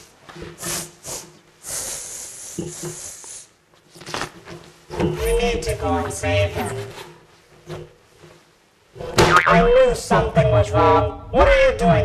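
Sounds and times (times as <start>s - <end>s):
person sniffing and snorting: 0.4s - 3.5s.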